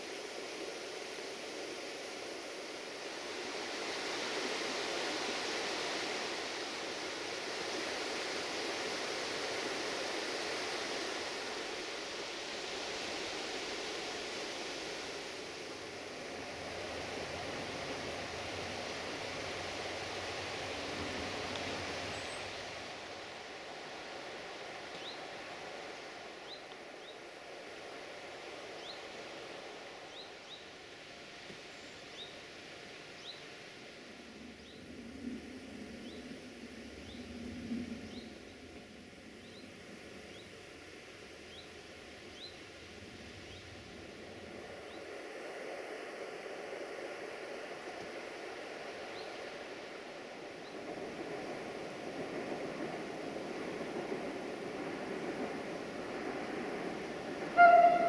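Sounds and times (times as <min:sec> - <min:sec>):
river rushing: 0:00.0 - 0:31.5, 0:44.4 - 0:58.0.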